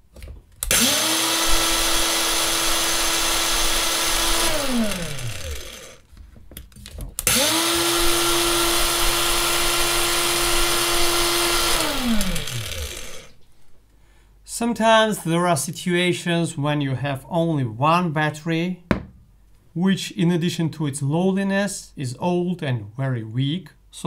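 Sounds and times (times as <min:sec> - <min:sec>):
angle grinder whining: 0:00.6 - 0:06.0, 0:07.2 - 0:13.4.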